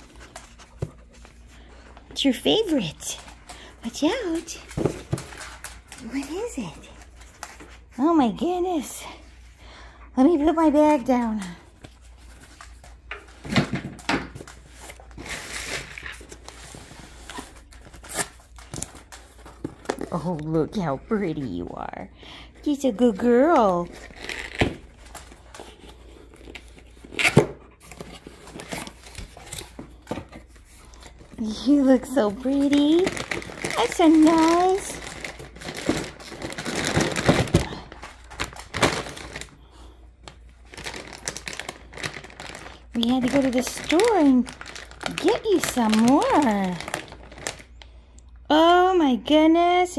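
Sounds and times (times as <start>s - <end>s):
plastic packaging crinkling: 23.0s - 48.0s.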